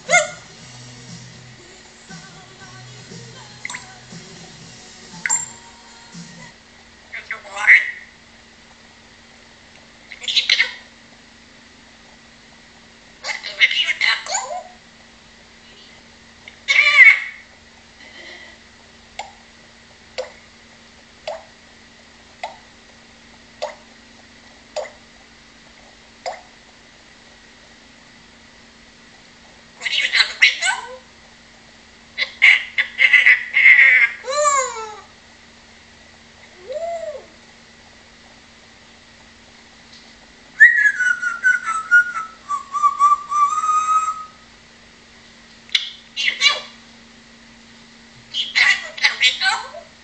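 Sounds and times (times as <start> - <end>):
parrot whistling: 0.0 - 0.6, 5.2 - 5.6, 40.6 - 44.4.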